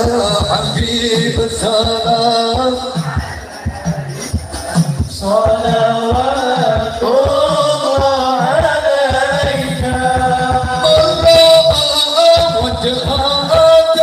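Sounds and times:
men singing devotional song: 0:00.0 - 0:14.0
steady drum beat: 0:00.0 - 0:14.0.

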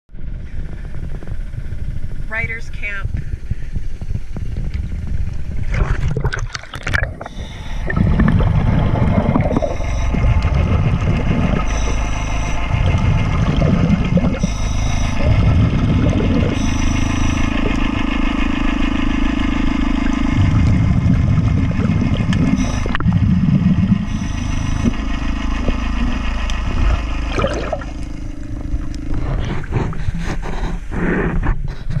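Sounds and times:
low steady hum: 0:00.1 - 0:32.0
muffled underwater rumble: 0:00.1 - 0:32.0
scuba exhaust bubbles: 0:00.4 - 0:32.0
camera splashing into water: 0:05.7 - 0:09.6.

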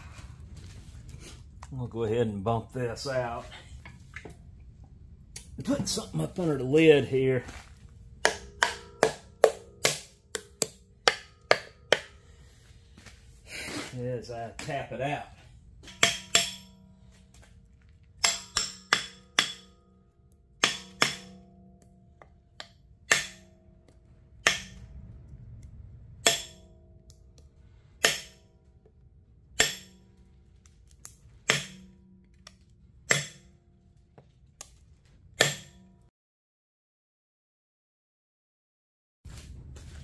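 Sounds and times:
wooden rod knocking with ringing: 0:08.2 - 0:12.3.

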